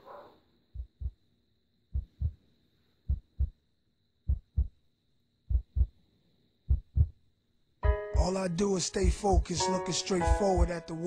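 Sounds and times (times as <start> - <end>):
heartbeat thumps: 0.8 - 1.2, 1.9 - 2.4, 3.1 - 3.6, 4.3 - 4.8, 5.5 - 6.0, 6.7 - 7.2, 8.2 - 8.4, 9.0 - 9.6, 10.2 - 10.8.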